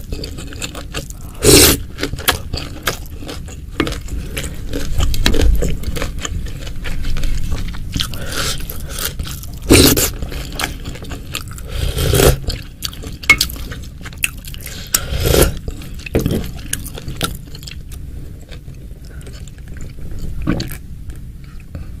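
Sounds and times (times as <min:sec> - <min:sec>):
wet chewing and biting: 0:00.0 - 0:11.7.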